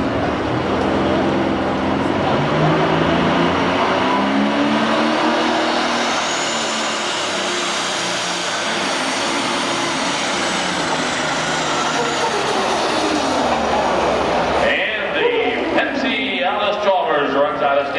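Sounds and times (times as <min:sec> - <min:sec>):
diesel tractor engine at full power: 0:00.0 - 0:17.9
high turbo whistle: 0:04.1 - 0:13.8.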